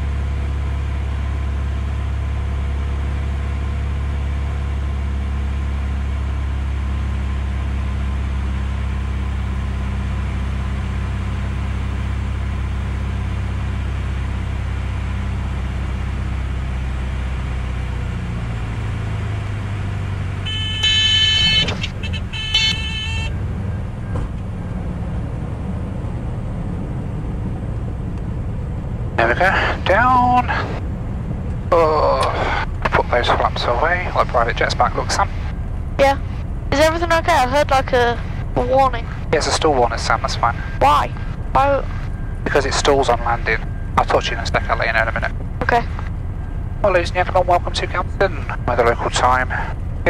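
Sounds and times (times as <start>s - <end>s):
airplane engine drone: 0.0s - 50.0s
stall warning horn: 20.4s - 23.4s.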